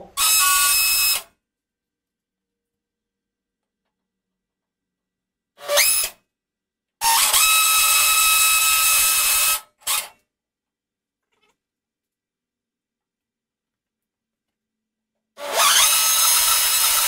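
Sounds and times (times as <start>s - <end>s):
cordless drill boring into metal: 0.2s - 1.3s, 5.6s - 6.2s, 7.0s - 10.2s, 15.4s - 17.0s.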